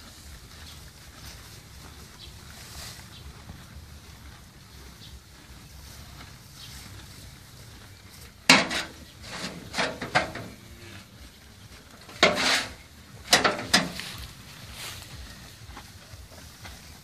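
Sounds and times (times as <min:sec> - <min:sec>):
pitchfork scraping metal wheelbarrow: 0:08.1 - 0:11.1, 0:11.8 - 0:17.0.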